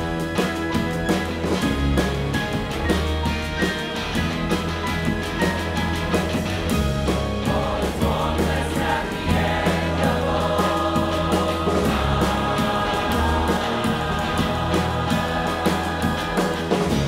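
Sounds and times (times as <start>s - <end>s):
drums: 0.0s - 17.0s
electric guitar: 0.0s - 17.0s
held bass: 0.0s - 17.0s
choir singing: 7.3s - 17.0s.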